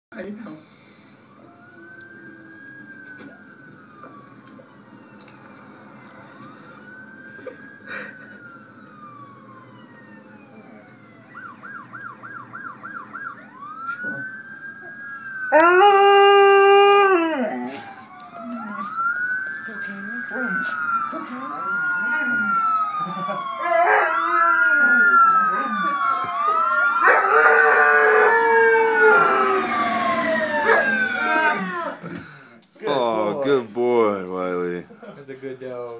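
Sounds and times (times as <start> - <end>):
faint siren wailing and yelping: 0.8 - 35.1
dog howling: 15.5 - 17.7, 23.1 - 26.0, 26.9 - 32.0.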